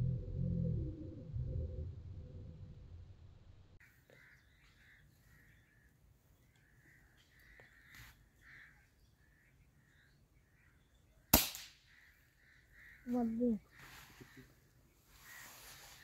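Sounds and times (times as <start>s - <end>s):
birds calling: 3.8s - 16.0s
air rifle shot: 11.3s - 11.8s.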